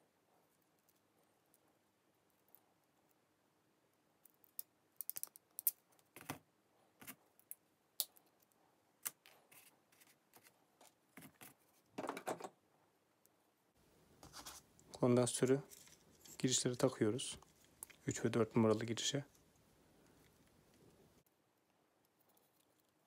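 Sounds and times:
rustle of handling: 14.2s - 21.2s.

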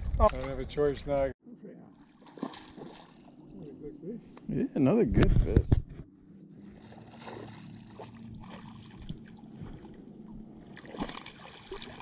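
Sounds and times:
fish splashing at surface: 2.0s - 3.3s, 6.6s - 9.4s, 10.7s - 12.0s.

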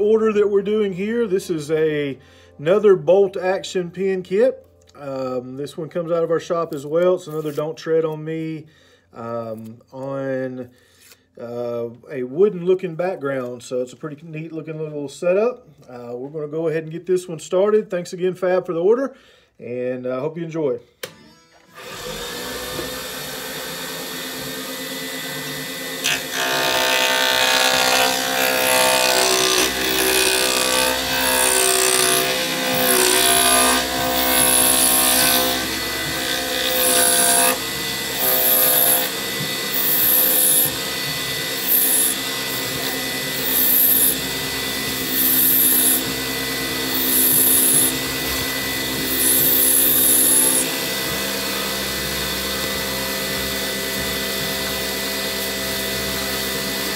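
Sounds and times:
lathe motor whine: 21.5s - 56.9s.

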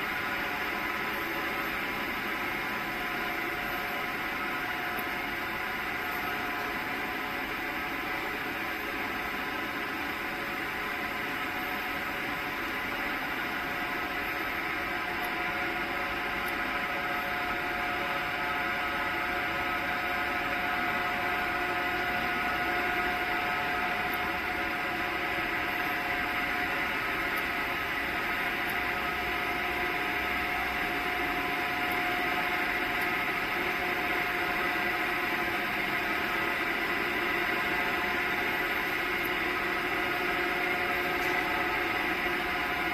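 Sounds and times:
factory machine hum: 0.0s - 42.9s.

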